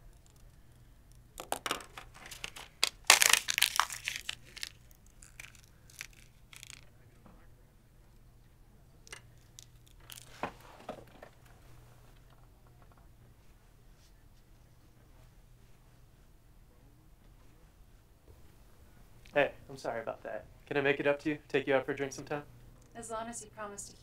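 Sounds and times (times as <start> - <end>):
paper tearing and crumpling: 2.0 - 6.8.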